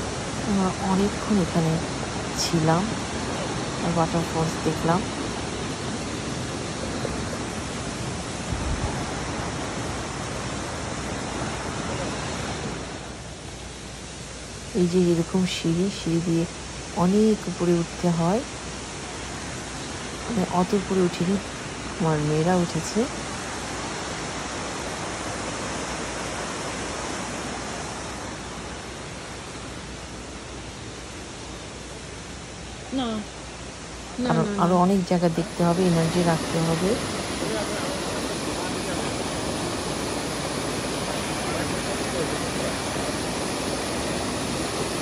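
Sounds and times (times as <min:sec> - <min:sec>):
waterfall rushing: 0:00.0 - 0:13.3, 0:23.1 - 0:45.0
water rushing over rocks: 0:35.6 - 0:45.0.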